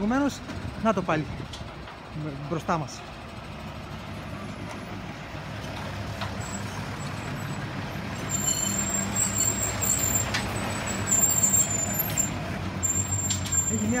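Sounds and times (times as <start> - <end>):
garbage truck diesel engine: 0.0 - 14.0
thin high-pitched squeals: 8.2 - 14.0.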